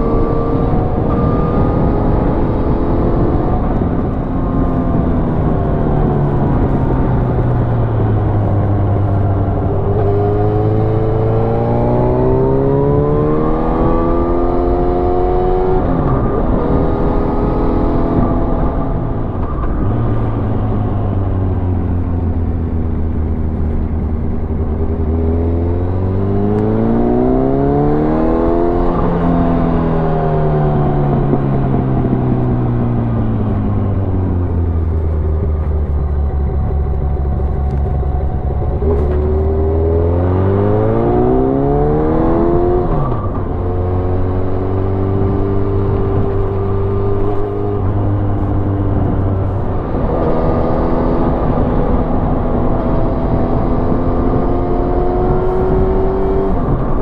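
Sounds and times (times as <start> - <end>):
motorcycle engine revving: 0.0 - 57.0.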